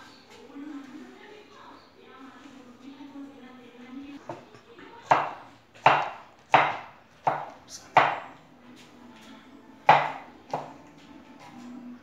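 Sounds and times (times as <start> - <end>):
knife chopping on wooden board: 5.1 - 8.3, 9.9 - 10.7.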